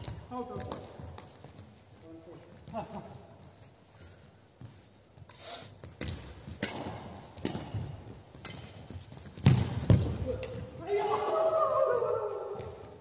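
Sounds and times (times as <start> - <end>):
rackets hitting shuttlecock: 6.0 - 11.0.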